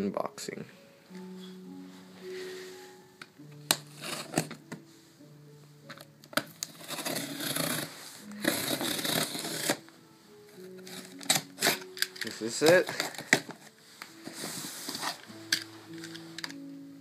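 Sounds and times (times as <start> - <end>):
background music: 0.0 - 17.0
box cutter clicking: 6.6 - 9.8, 11.0 - 13.5
blade scraping through tape: 6.7 - 9.8.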